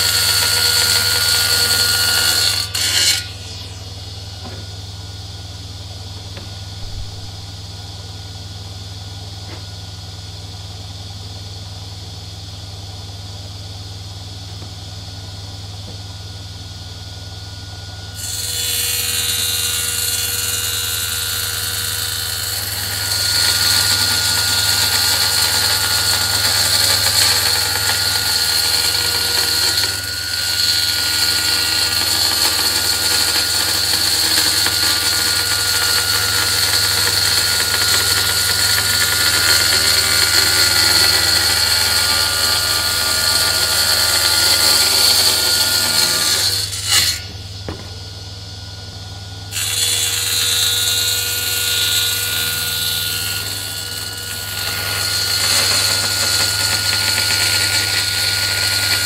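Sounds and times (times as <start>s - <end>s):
table saw running: 0.0s - 7.8s, 17.2s - 48.2s, 49.0s - 59.0s.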